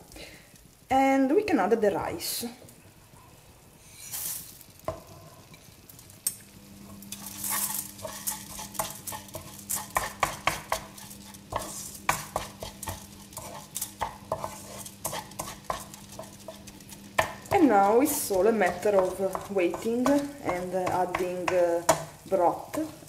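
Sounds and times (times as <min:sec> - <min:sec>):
oil sizzling: 0:00.0 - 0:23.0
wooden spoon scraping a pan: 0:03.8 - 0:05.8, 0:06.8 - 0:23.0.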